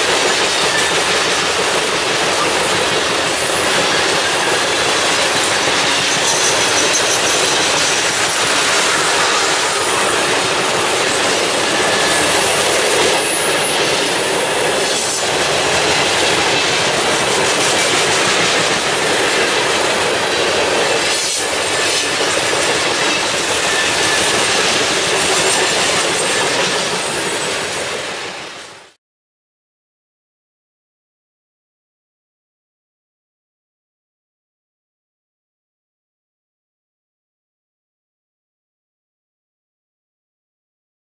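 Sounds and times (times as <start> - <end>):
train wheels rolling on rail: 0.0 - 29.0
high-pitched wheel squeal: 3.4 - 15.2.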